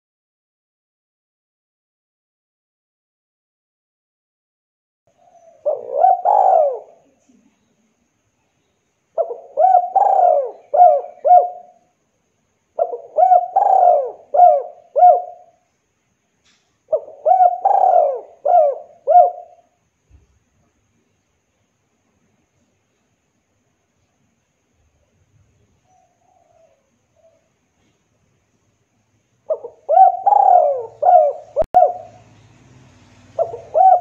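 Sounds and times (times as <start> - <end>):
dove cooing: 5.2 - 7.2, 9.2 - 11.8, 12.8 - 15.6, 16.9 - 19.8, 25.8 - 27.6, 29.5 - 32.3, 33.3 - 34.0.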